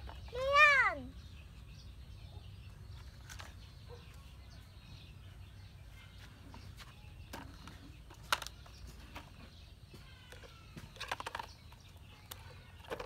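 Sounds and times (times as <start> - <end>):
plastic toy trucks clacking: 7.3 - 9.5, 10.3 - 13.0.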